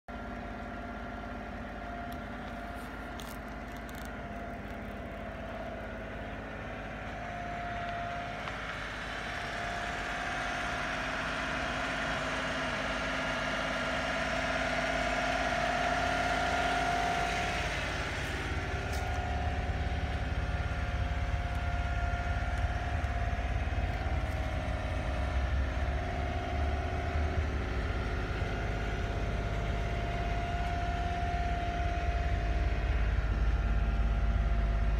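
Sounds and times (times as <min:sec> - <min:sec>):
truck engine idling: 0:00.1 - 0:34.9.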